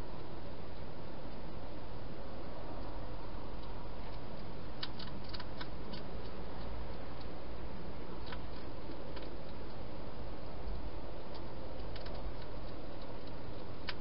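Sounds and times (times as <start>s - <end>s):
hedgehog eating crunches: 3.6s - 7.4s, 8.1s - 14.0s.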